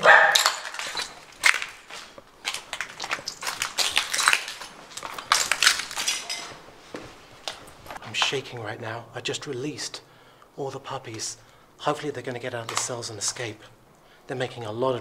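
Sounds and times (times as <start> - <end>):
irregular crunches and knocks: 0.0 - 8.4.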